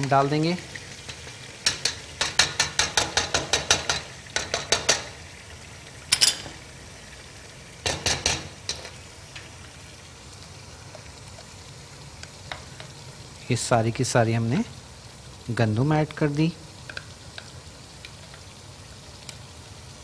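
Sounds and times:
food frying in a pot: 0.0s - 20.0s
kitchenware clinking and knocking: 6.1s - 6.6s.

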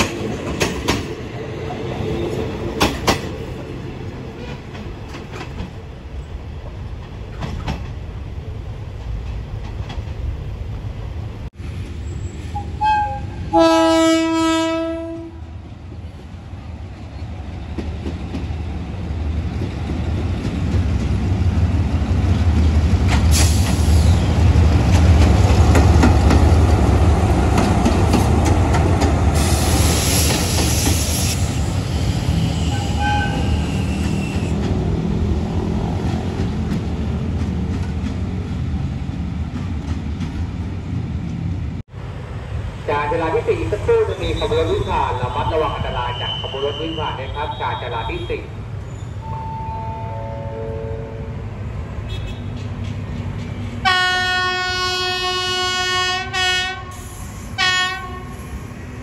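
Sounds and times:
railway coaches rolling on rails: 0.0s - 59.0s
locomotive horn: 12.5s - 15.4s, 32.7s - 33.7s, 49.2s - 51.5s, 53.8s - 58.4s
hiss: 23.3s - 24.2s, 29.3s - 32.7s, 56.9s - 57.6s.

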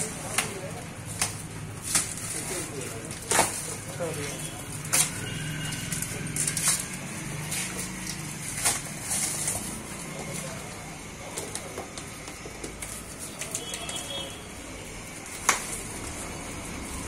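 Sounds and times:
plastic stretch wrap crinkling: 0.0s - 10.8s.

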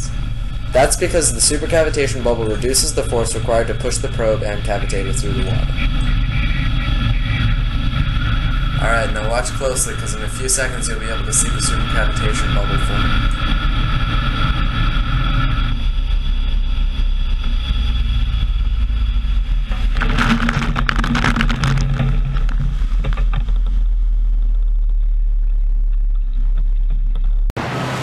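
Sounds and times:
motorboat engine rumble: 0.0s - 28.0s.

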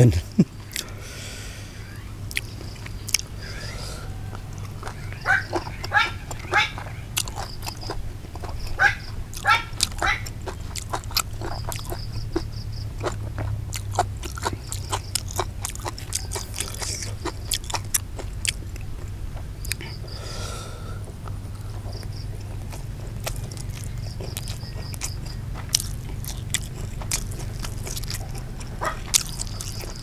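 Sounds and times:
steady low hum: 0.0s - 30.0s
man chewing wetly: 0.5s - 1.2s, 2.2s - 30.0s
mouth clicks: 2.3s - 3.8s.

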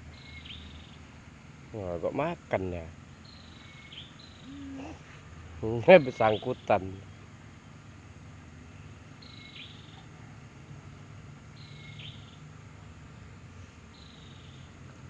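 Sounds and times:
faint low riverside hum: 0.0s - 15.0s
high thin animal call: 4.3s - 5.2s.

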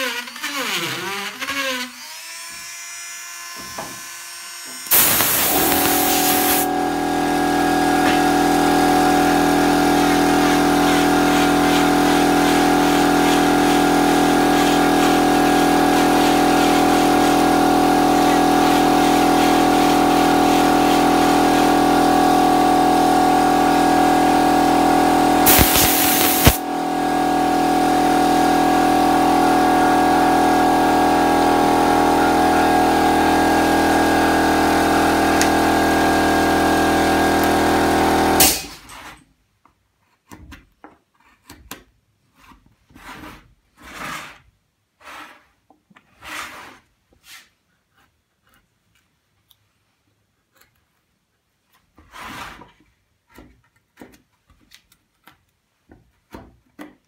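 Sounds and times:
rotary carving tool whining: 0.0s - 6.7s.

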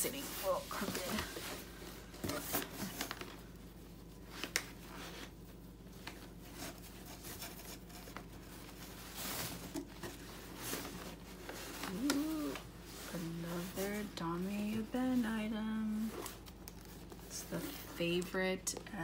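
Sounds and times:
fabric bag rustling: 0.0s - 3.4s, 6.6s - 18.0s.

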